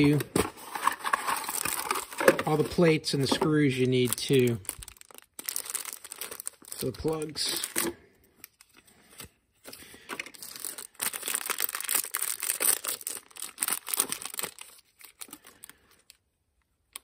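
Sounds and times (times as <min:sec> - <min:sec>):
plastic bag crinkling and tearing: 0:00.0 - 0:07.8, 0:10.2 - 0:16.1.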